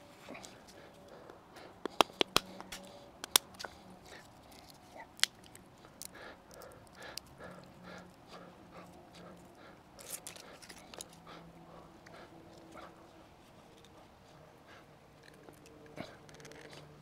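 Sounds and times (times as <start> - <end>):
walnut shell cracking: 1.8 - 7.7, 15.2 - 16.8.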